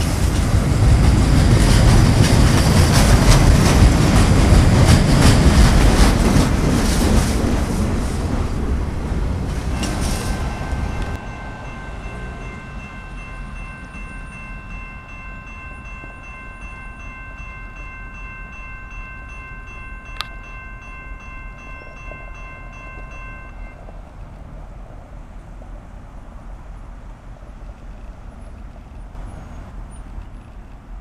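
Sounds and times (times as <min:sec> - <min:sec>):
loud rush of train noise: 0:00.0 - 0:31.0
passing train rumble: 0:00.0 - 0:31.0
crossing warning bell ringing: 0:09.5 - 0:23.9.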